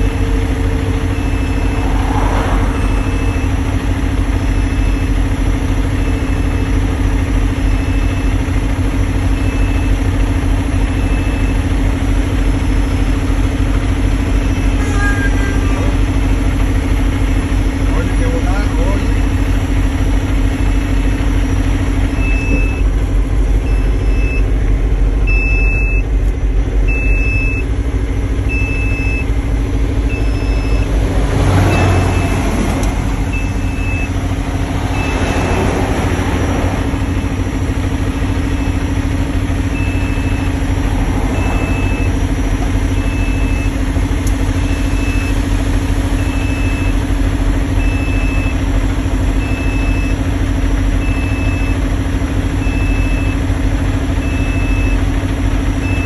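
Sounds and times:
backup alarm beeping: 0.0s - 2.2s, 2.8s - 6.9s, 20.6s - 22.9s, 23.5s - 24.6s, 25.2s - 27.8s, 28.4s - 29.4s, 30.0s - 31.0s, 31.7s - 32.6s, 33.2s - 34.4s, 36.4s - 47.1s
diesel truck engine drone: 0.0s - 56.0s.

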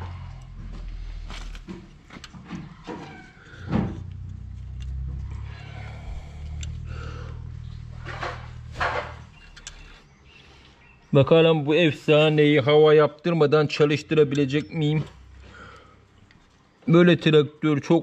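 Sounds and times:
low engine hum: 0.0s - 11.2s, 14.4s - 16.8s
hands clicking and scraping metal: 1.2s - 10.0s.

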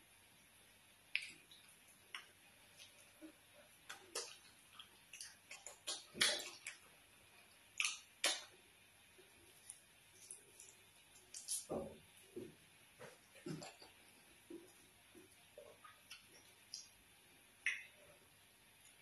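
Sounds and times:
wet squelches of food squeezed: 1.1s - 8.6s, 9.2s - 11.8s.

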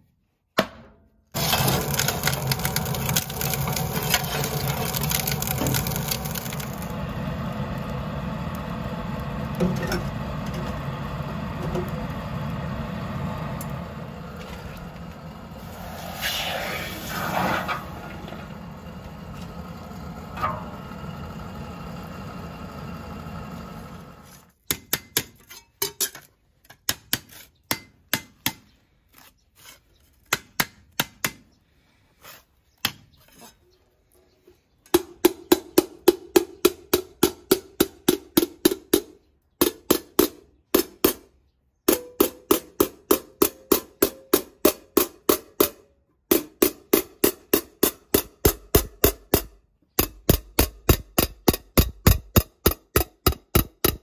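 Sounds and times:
hot metal hissing in water: 15.4s - 18.0s.

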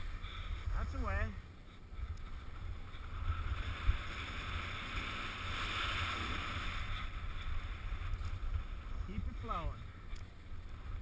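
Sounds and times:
wind rumble on microphone: 0.0s - 11.0s
skis scraping over snow: 2.2s - 11.0s.

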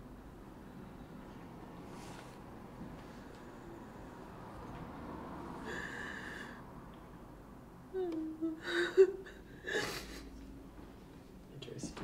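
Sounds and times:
woman sobbing: 7.9s - 10.4s.

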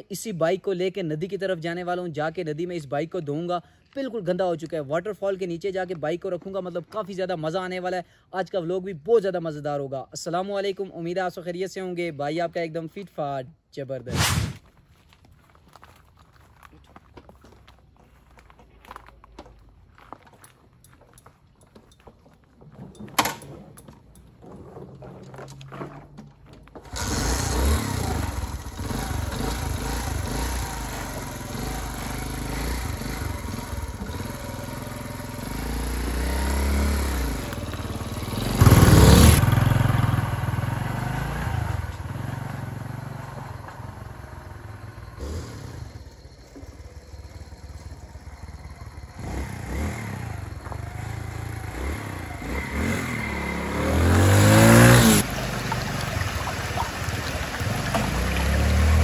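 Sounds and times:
motorcycle engine revving: 26.8s - 59.0s.

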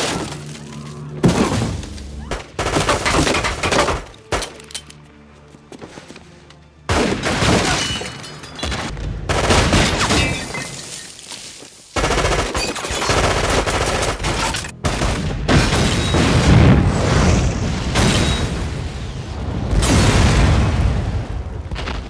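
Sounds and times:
explosion: 14.8s - 22.0s.

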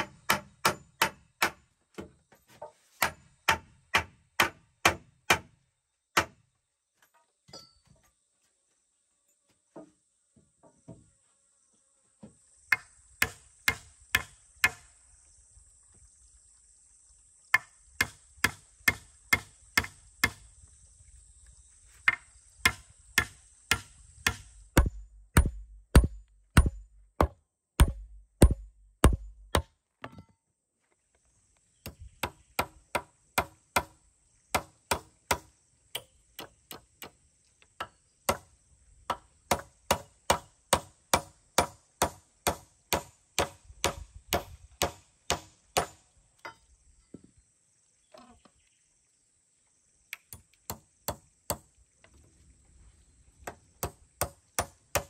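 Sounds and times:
hammer knocking on wooden poles: 0.0s - 2.2s, 3.0s - 5.5s, 22.0s - 30.2s.

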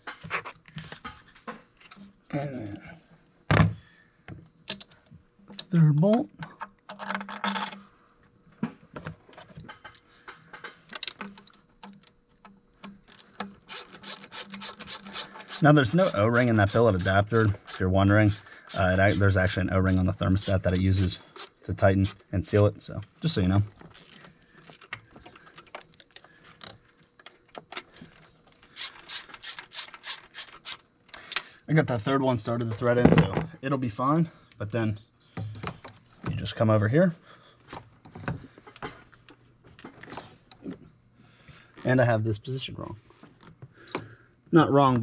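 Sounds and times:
hand ratchet clicking: 10.5s - 22.6s, 23.9s - 24.9s, 28.7s - 31.4s.

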